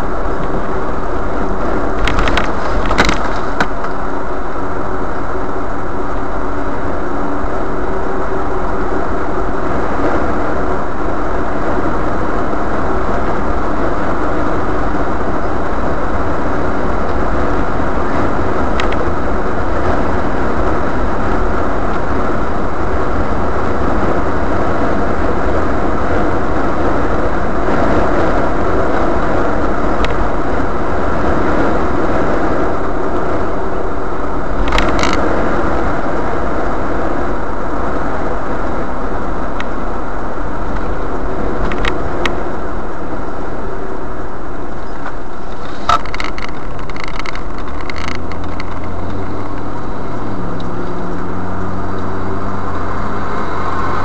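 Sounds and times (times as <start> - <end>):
car road and engine noise: 0.0 - 54.0
low steady hum: 0.0 - 54.0
short clicks or rattles: 45.5 - 49.7.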